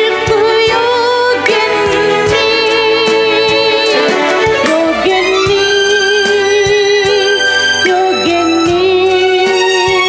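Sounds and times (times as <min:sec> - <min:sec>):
worship song with keyboard: 0:00.0 - 0:10.0.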